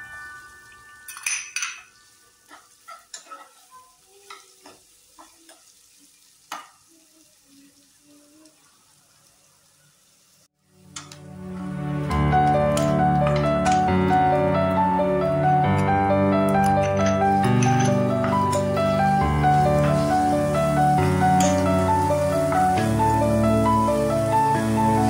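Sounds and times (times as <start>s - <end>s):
piano music: 0.0s - 2.6s, 10.8s - 25.0s
onions frying sizzle: 0.0s - 25.0s
spoon scraping and knocking pan: 1.1s - 5.6s, 16.5s - 18.9s, 19.5s - 20.3s, 21.3s - 21.8s.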